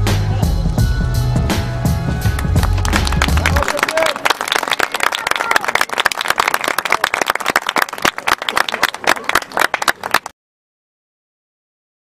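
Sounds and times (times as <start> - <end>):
crowd clapping: 2.2 - 10.3.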